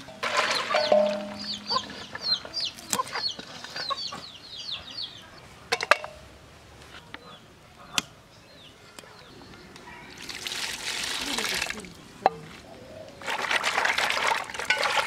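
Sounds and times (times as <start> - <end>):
chicks peeping: 0.5 - 5.4
water pouring into metal pot: 13.3 - 15.0.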